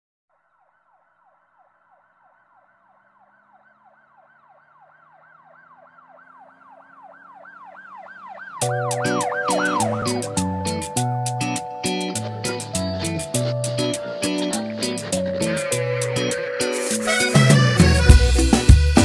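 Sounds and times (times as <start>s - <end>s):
siren yelping: 0.4s - 18.4s
strummed guitar music: 8.6s - 19.0s.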